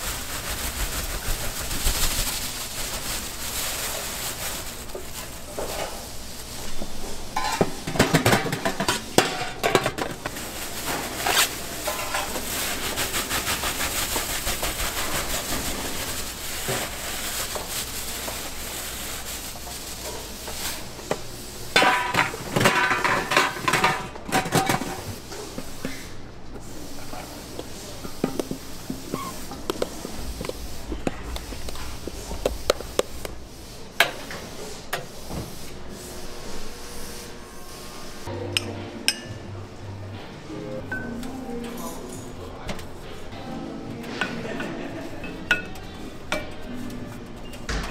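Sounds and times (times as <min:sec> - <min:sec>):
plastic bags rustling: 0:00.0 - 0:33.9
metal pans clattering: 0:07.3 - 0:12.6, 0:21.7 - 0:25.9.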